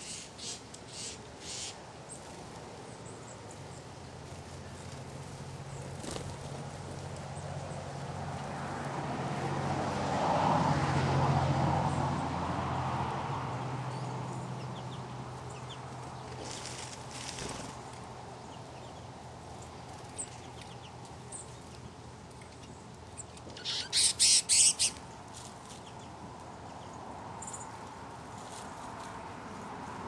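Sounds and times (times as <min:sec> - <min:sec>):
finches chirping: 0:00.0 - 0:02.3, 0:23.2 - 0:25.0.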